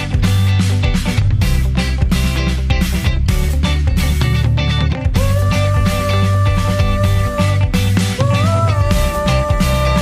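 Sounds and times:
background music with steady beat: 0.0s - 10.0s.

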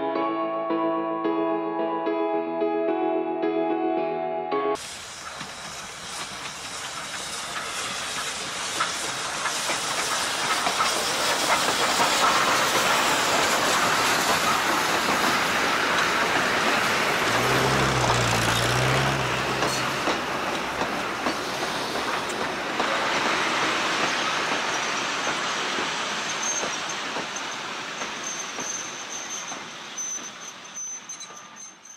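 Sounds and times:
steam locomotive hissing: 4.8s - 31.8s
train wheels on rails: 4.8s - 31.9s.

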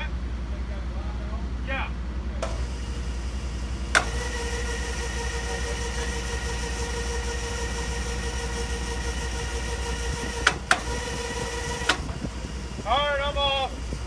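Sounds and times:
low engine rumble: 0.0s - 14.0s
jack motor whining: 2.4s - 14.0s.

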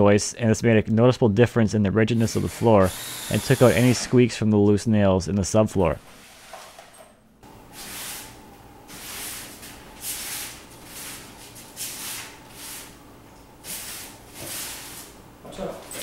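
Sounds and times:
broom sweeping debris: 7.7s - 13.0s, 13.6s - 15.2s.

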